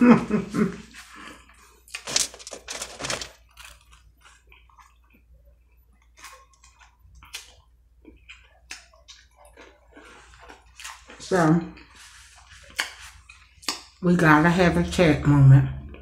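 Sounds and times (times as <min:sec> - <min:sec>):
chewing crispy food: 0:01.2 - 0:14.0
mouth clicks and smacks: 0:06.2 - 0:09.6, 0:13.6 - 0:14.0.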